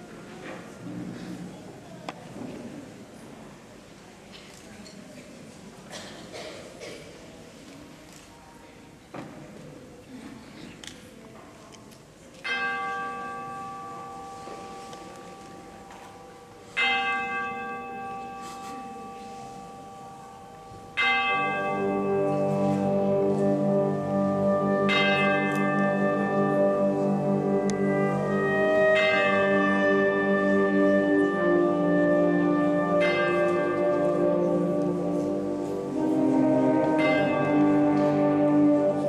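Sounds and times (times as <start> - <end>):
tubular bells ringing: 12.4 - 39.0
wind band held chords: 20.9 - 39.0.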